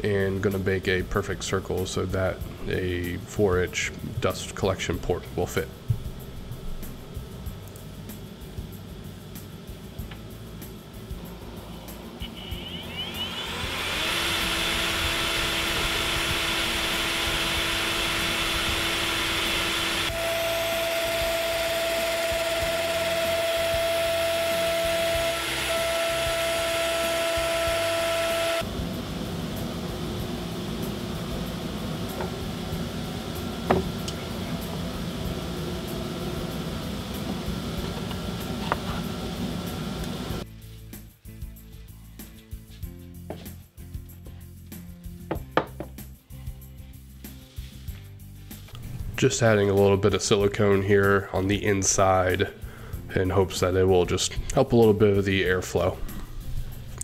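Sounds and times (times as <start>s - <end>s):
router spindle whine: 11.4s - 40.4s
bit cutting plywood: 12.2s - 28.7s.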